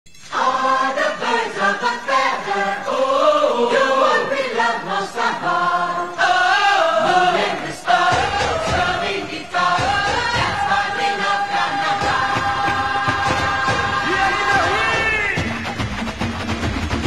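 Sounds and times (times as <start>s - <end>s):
group singing wordless chant: 0.3s - 15.5s.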